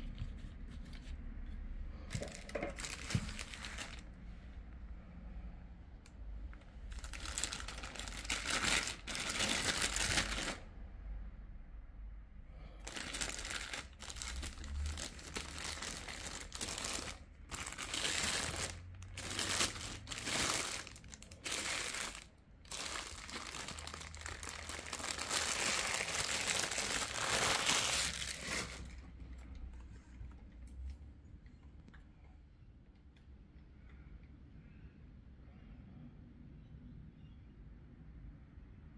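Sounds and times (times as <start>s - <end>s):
plastic bag crinkling: 2.1s - 4.1s, 6.9s - 10.6s, 12.8s - 29.1s.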